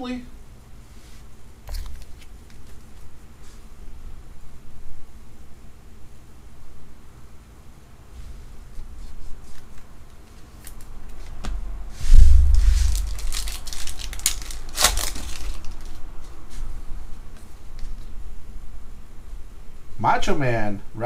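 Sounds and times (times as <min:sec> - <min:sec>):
wrapper tearing and crinkling: 0:12.4 - 0:16.0.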